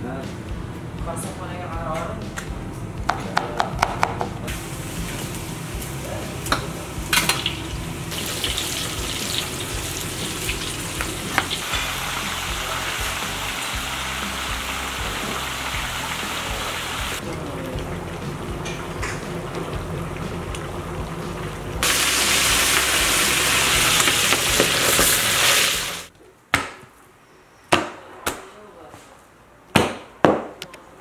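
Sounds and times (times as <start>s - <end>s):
hot oil sizzling: 4.5s - 26.1s.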